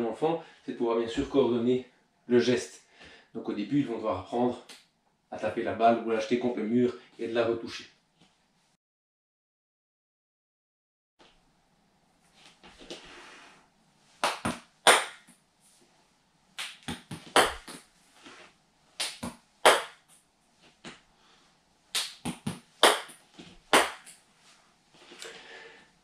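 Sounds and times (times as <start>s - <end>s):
small ball bouncing: 16.6s - 17.8s, 22.0s - 24.1s.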